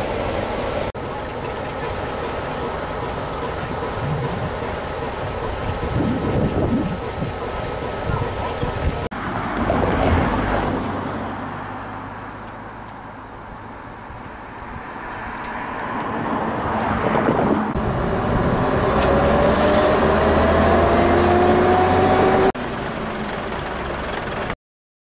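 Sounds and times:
diesel locomotive engine powering up: 0.0 - 11.4, 16.0 - 24.6
rising whine: 0.0 - 13.0, 15.4 - 23.6.

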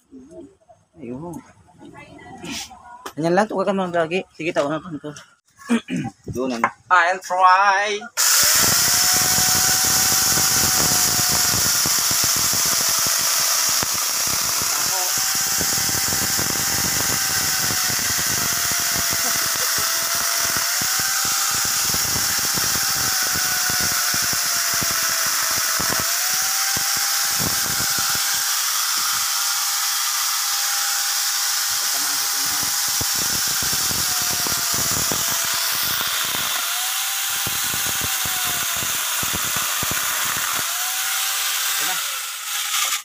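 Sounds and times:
chainsaw attachment cutting wood: 8.2 - 43.0.

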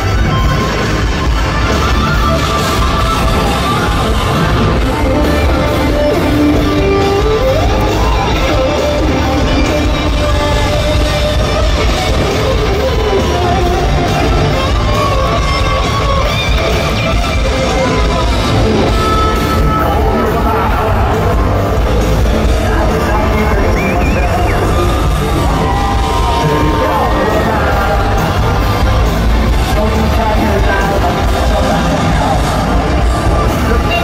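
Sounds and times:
electric guitar bending lead lines: 0.0 - 34.0
live hard rock band: 0.0 - 34.0.

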